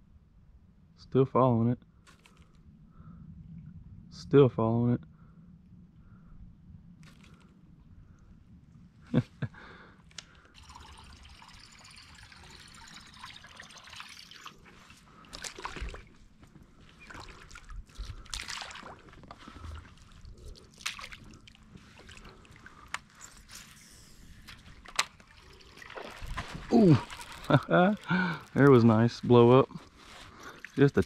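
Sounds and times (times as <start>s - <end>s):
water trickling and lapping: 10.1s - 31.0s
small water splashes: 10.5s - 23.1s, 24.5s - 29.0s.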